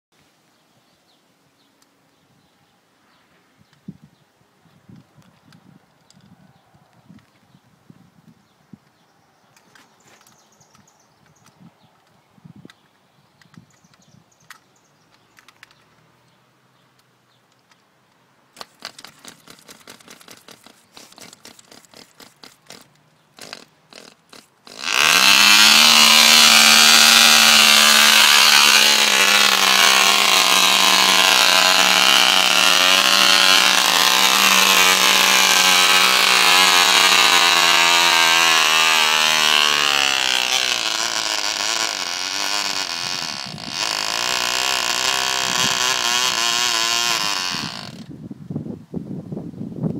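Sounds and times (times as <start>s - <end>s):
engine clicking by hand: 18.6s - 48.0s
model engine buzzing: 18.6s - 48.1s.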